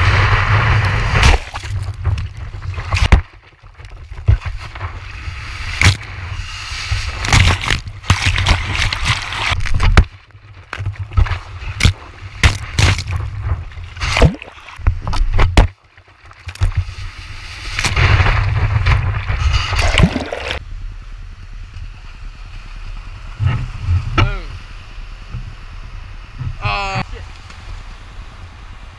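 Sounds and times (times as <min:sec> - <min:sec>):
water splashing and sloshing: 0:00.3 - 0:20.6.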